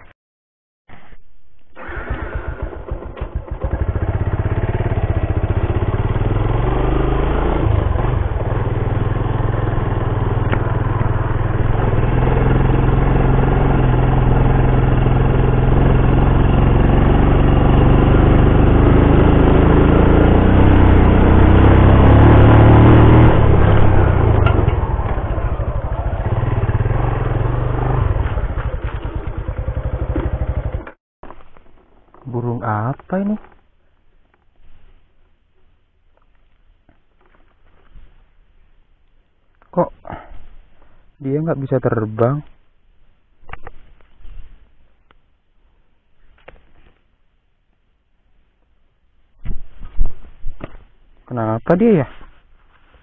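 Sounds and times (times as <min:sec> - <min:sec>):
small motorcycle engine: 0:01.8 - 0:31.0.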